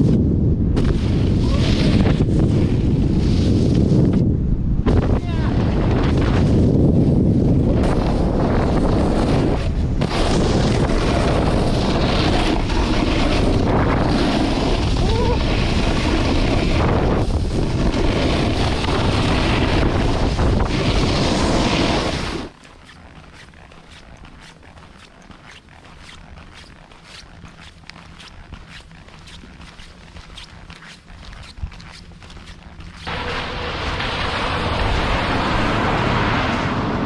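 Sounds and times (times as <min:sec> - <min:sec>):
snowboard sliding on snow: 0:00.0 - 0:04.2, 0:05.6 - 0:37.0
wind rushing over microphone: 0:00.0 - 0:25.1.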